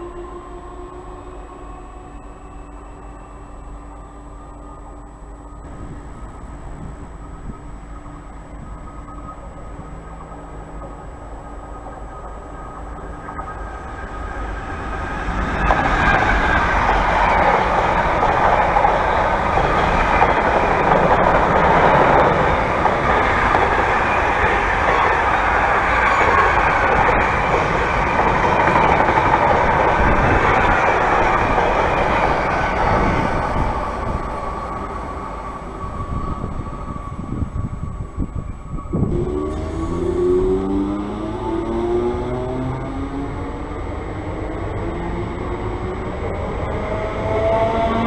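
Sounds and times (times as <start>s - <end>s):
train locomotive approaching: 0.0s - 48.0s.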